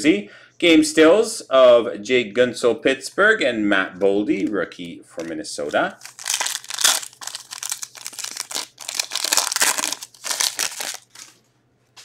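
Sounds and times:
foil wrapper tearing and crinkling: 6.0 - 11.4.

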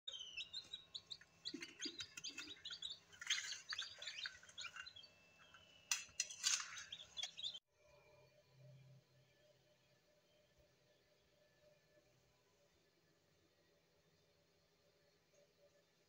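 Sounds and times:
chicks peeping: 0.1 - 7.6.

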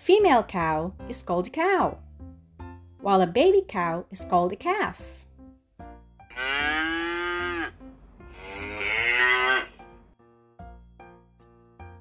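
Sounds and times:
cow mooing: 6.3 - 9.8.

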